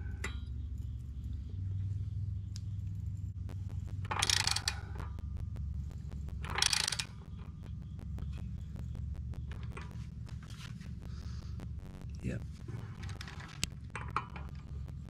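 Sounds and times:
steady low hum: 0:00.0 - 0:15.0
socket wrench ratchet clicking: 0:04.0 - 0:05.1, 0:06.4 - 0:07.5.

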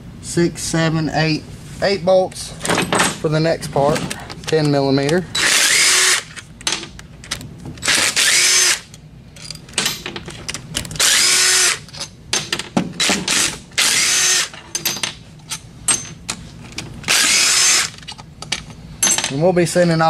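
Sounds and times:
cordless drill whining: 0:07.9 - 0:08.8, 0:11.0 - 0:11.8, 0:13.8 - 0:14.5, 0:17.1 - 0:18.0.

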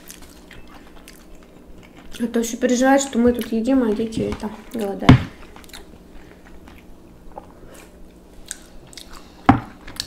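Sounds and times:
close-up chewing: 0:00.0 - 0:10.0.

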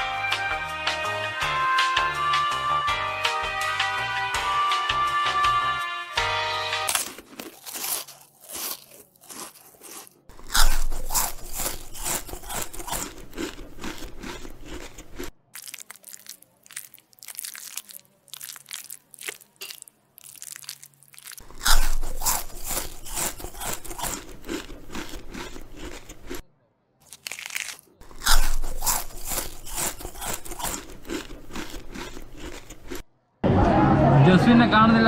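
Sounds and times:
chewing crisp food: 0:06.8 - 0:33.1.

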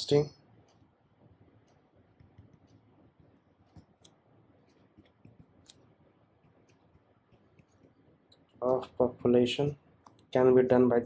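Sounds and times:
stylus tapping tablet screen: 0:00.4 - 0:09.1.

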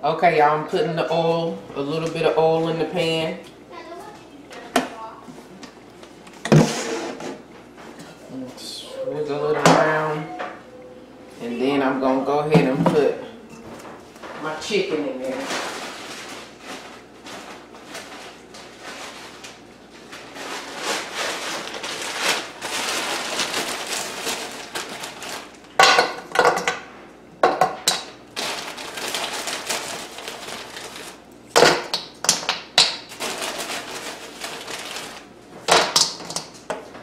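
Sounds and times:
plastic bag rustling: 0:13.6 - 0:25.8, 0:28.3 - 0:31.4, 0:33.0 - 0:35.6.

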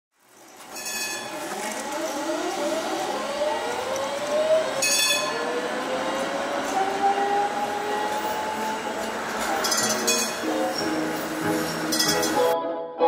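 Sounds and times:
tram motor whine: 0:00.3 - 0:12.5
short metallic rings: 0:00.7 - 0:01.3, 0:04.8 - 0:05.4, 0:09.6 - 0:10.5, 0:11.9 - 0:12.4.

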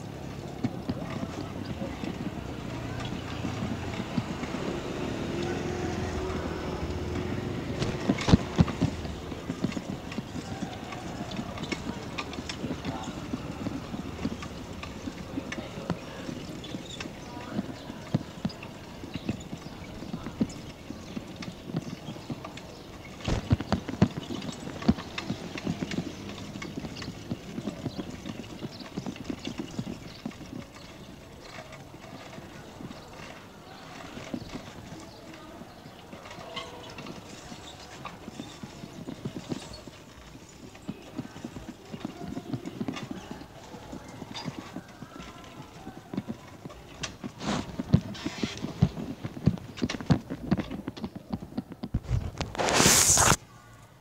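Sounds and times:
bicycle rattling and clicking: 0:00.0 - 0:52.6
bicycle knocks: 0:00.4 - 0:35.3.

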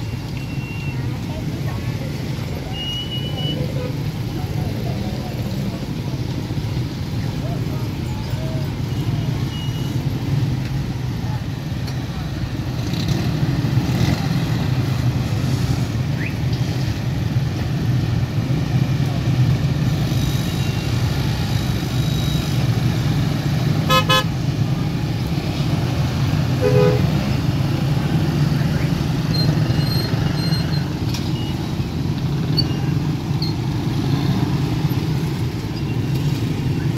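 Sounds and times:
low rumble of road traffic: 0:00.0 - 0:36.9
pulsing vehicle horn toot: 0:23.8 - 0:24.3, 0:26.6 - 0:27.2.

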